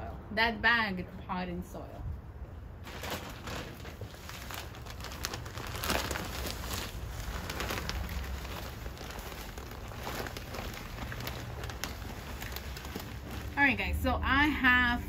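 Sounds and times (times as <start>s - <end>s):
plastic bag crinkling: 2.8s - 13.9s.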